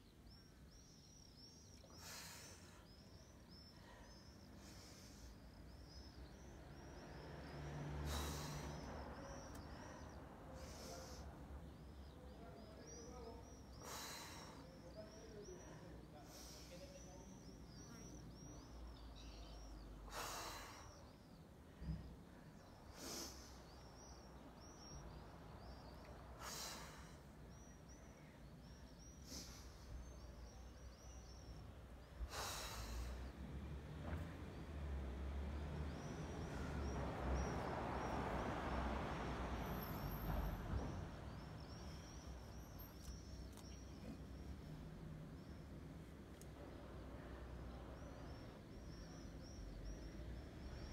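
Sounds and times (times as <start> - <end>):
small birds chirping: 0.0 - 50.9
person breathing hissing breaths: 1.9 - 6.0, 7.9 - 12.2, 13.6 - 17.9, 19.2 - 21.3, 22.6 - 24.1, 25.6 - 27.7, 29.0 - 31.4, 32.1 - 33.4
person breathing forcefully: 7.9 - 12.1, 13.8 - 14.9, 20.1 - 21.2, 32.2 - 33.4.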